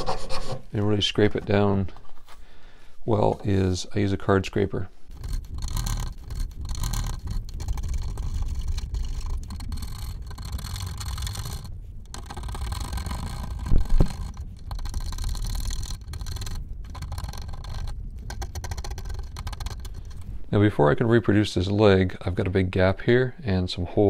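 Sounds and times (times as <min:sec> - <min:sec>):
card scraper scraping wood: 0:05.1 - 0:20.1.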